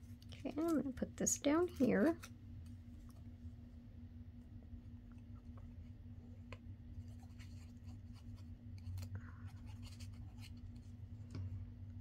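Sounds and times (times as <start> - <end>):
paper rubbing: 7.0 - 8.5.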